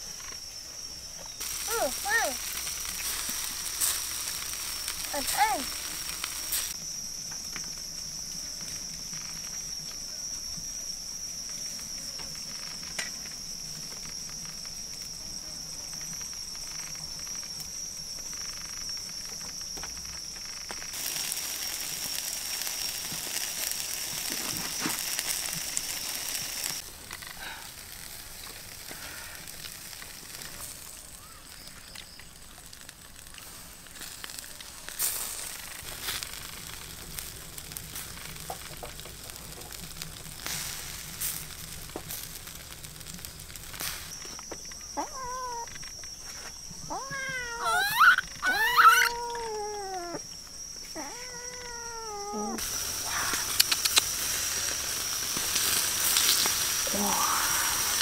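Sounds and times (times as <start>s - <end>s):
insects droning: 0.0s - 58.0s
quiet hiss: 0.0s - 58.0s
faint clicks and crackles: 15.8s - 58.0s.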